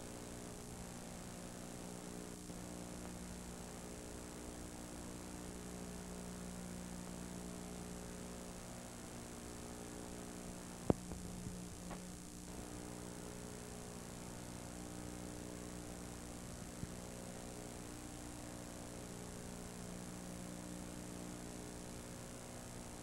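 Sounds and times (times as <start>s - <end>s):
electrical mains hum: 0.0s - 23.0s
tape hiss: 0.0s - 23.0s
faint ticks: 10.8s - 12.2s.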